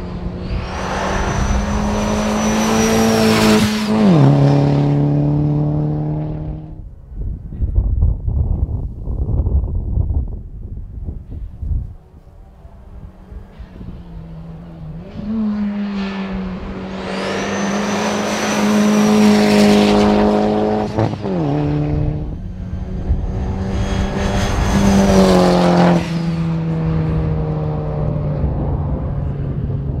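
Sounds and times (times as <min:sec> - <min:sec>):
rally car engine revving past: 0:00.0 - 0:06.8, 0:12.8 - 0:29.9.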